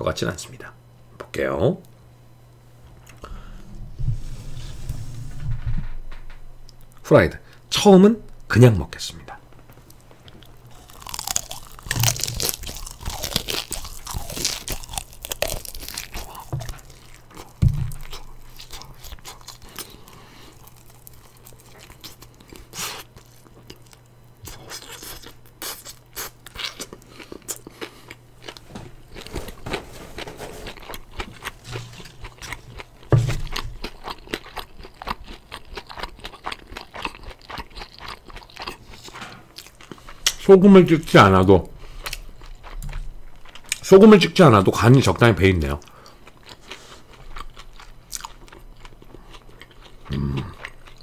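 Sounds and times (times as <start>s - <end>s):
crunching fried chicken: 10.4s - 41.2s, 41.8s - 51.0s.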